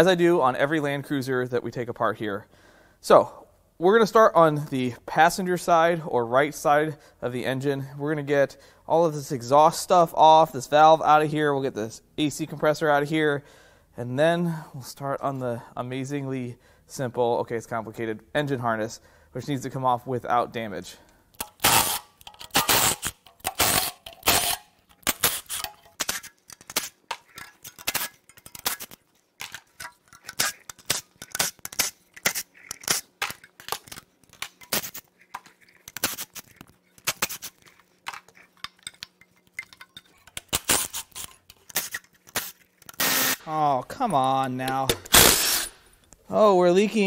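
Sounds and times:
impact wrench bursts: 21.4s - 26.3s, 41.8s - 43.5s, 44.9s - 45.9s.

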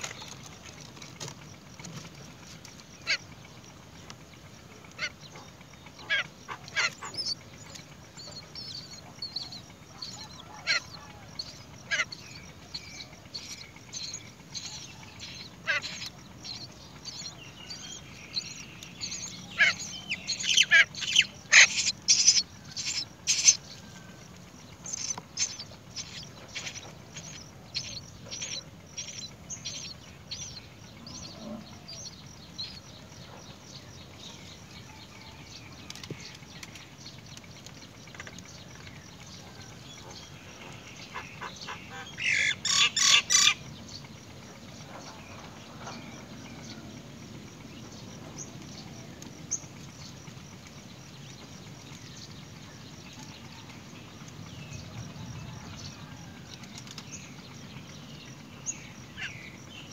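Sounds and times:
nestlings squeaking shrilly: 6.0s - 23.6s, 24.8s - 30.6s, 41.9s - 43.6s.

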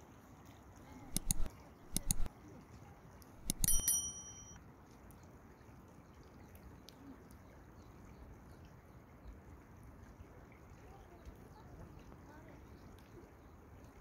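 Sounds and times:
sharp metallic clinks: 1.1s - 2.3s, 3.4s - 4.6s.

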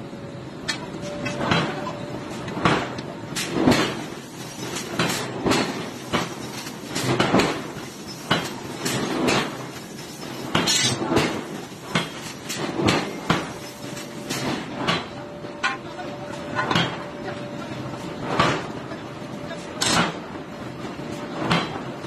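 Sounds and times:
metal clanks of forging: 10.5s - 13.5s, 19.8s - 20.2s.

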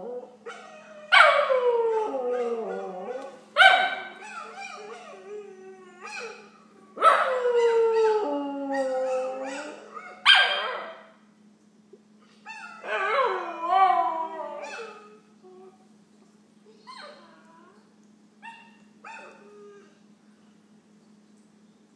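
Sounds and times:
dog howling: 0.0s - 11.0s, 12.6s - 15.7s.

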